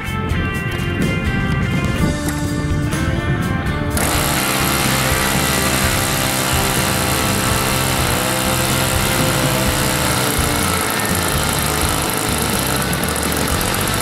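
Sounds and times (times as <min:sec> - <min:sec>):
model airplane engine idling: 0:04.0 - 0:14.0.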